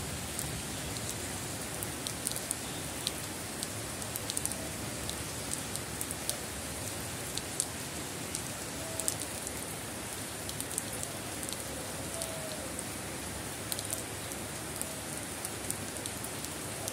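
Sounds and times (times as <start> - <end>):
steady rain on concrete: 0.0 - 16.9
sharp drip ticks: 1.8 - 6.4, 8.3 - 9.5, 13.7 - 14.0.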